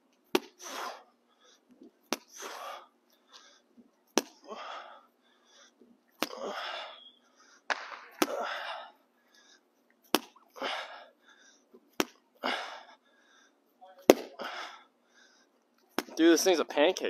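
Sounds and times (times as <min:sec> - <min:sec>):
ball smacking concrete wall: 0:00.3 - 0:00.8, 0:02.1 - 0:02.5, 0:04.1 - 0:04.4, 0:06.1 - 0:06.4, 0:07.7 - 0:08.6, 0:10.1 - 0:10.4, 0:11.9 - 0:12.2, 0:14.1 - 0:14.4, 0:15.9 - 0:16.2.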